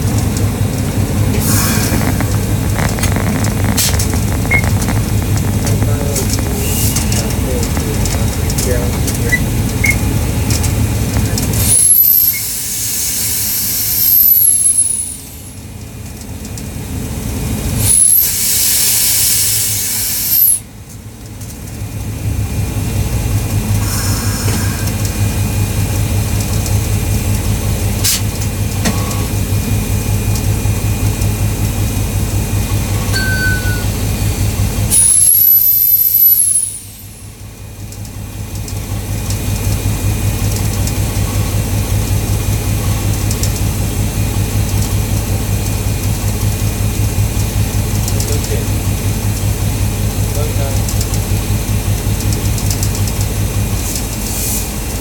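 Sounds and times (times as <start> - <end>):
train low rumble: 0.0 - 55.0
air brakes hissing: 1.4 - 2.3, 6.6 - 7.4, 11.6 - 15.6, 17.8 - 20.6, 23.8 - 25.0, 34.9 - 37.3, 54.2 - 54.8.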